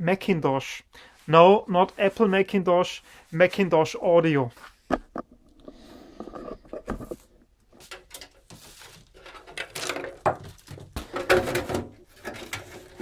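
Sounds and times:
metal cover scraping: 5.0s - 7.4s, 11.1s - 13.0s.

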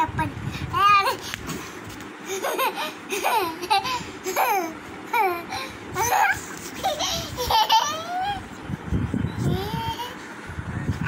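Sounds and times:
child laughing and babbling: 0.0s - 1.3s, 2.2s - 8.6s, 9.4s - 10.2s.

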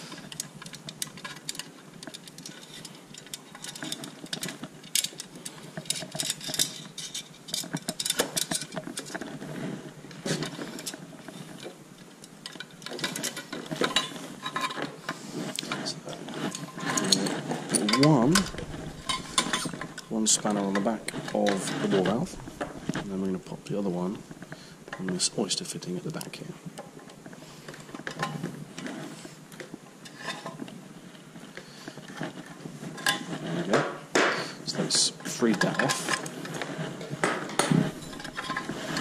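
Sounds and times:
metal box being handled: 15.7s - 25.2s, 35.2s - 39.0s.

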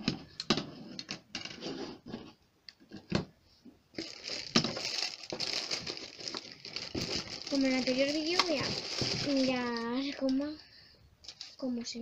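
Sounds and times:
plastic bags crinkling: 4.0s - 10.6s, 11.2s - 11.8s.

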